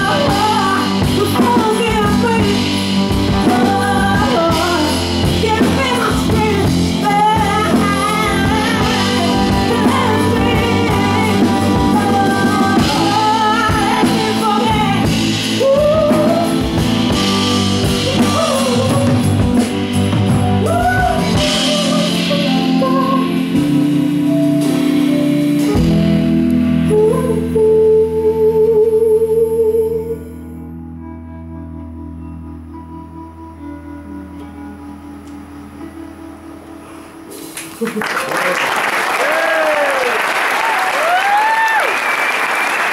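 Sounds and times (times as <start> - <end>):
woman singing: 0.0 - 25.8, 26.6 - 30.4
guitar and bass: 0.0 - 37.9
live soul band playing: 0.0 - 37.9.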